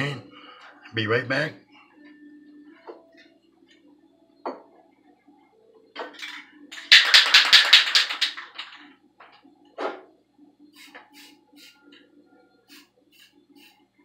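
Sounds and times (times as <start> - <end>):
spray can rattling: 6.2 - 8.8.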